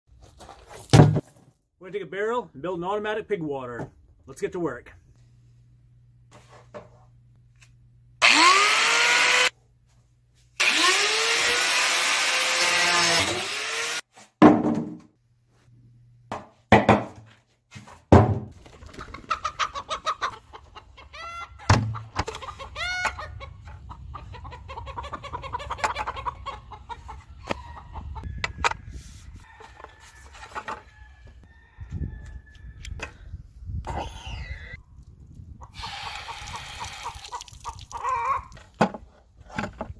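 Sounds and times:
angle grinder cutting plastic: 0:08.2 - 0:09.5, 0:10.6 - 0:14.0
farmyard animal calls: 0:18.9 - 0:28.3, 0:35.7 - 0:38.7.

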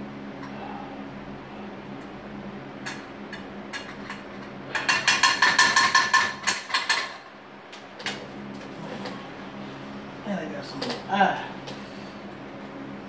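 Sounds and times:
utensil clattering in metal pan: 0:04.8 - 0:07.2.

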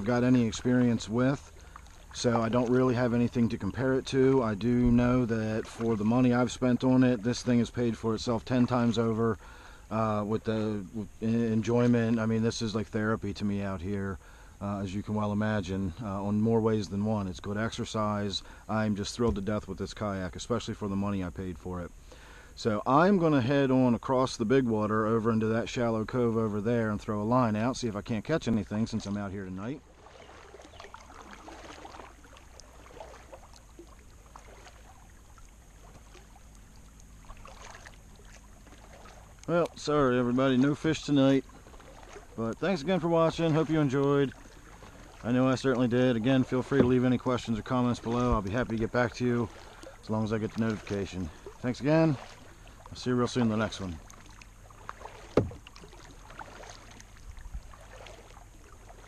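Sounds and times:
water dripping off paddle: 0:00.0 - 0:09.9, 0:29.9 - 0:59.0
paddle dipping in water: 0:00.0 - 0:13.0, 0:28.4 - 0:59.0.

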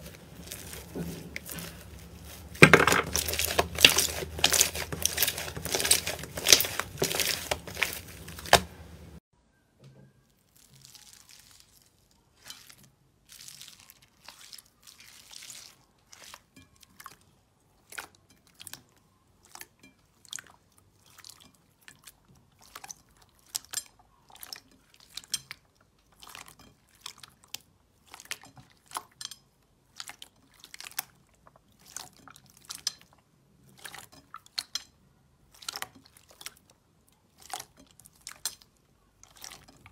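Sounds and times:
slime crackling: 0:00.0 - 0:09.2, 0:10.4 - 0:18.1.

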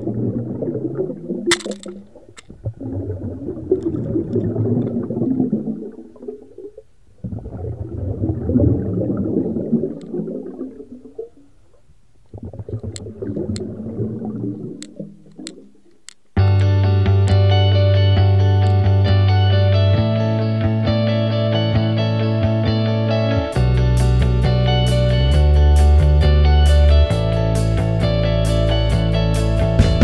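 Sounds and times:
muffled underwater rumble: 0:00.0 - 0:15.9
sharp clicks: 0:01.5 - 0:02.6, 0:14.8 - 0:17.4.

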